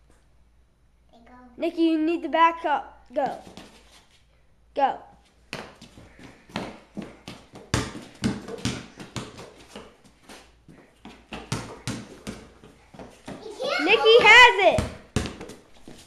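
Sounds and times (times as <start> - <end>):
basketball bouncing on hard floor: 5.5 - 10.0, 10.7 - 16.0.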